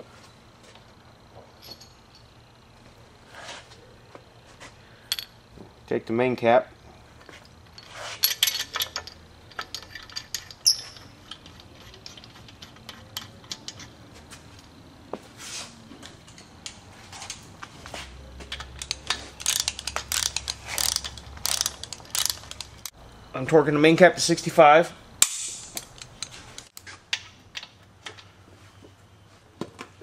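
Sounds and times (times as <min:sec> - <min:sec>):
metal bolts clicking and clinking: 0:01.6 - 0:02.4, 0:07.2 - 0:14.8, 0:18.4 - 0:23.0, 0:25.2 - 0:28.4.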